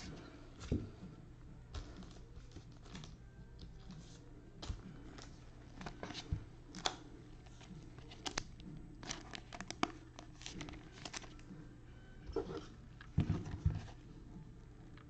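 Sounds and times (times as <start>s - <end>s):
plastic card sleeve rustling: 3.8s - 11.5s.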